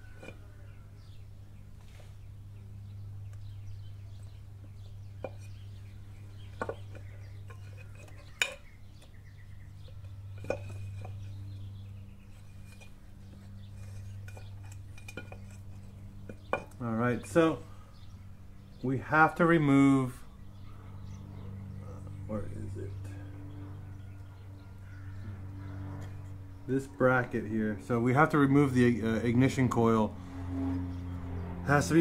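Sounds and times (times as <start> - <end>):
steady low hum: 0.0 - 32.0
metal clinks of engine parts: 6.4 - 9.2, 13.9 - 16.8.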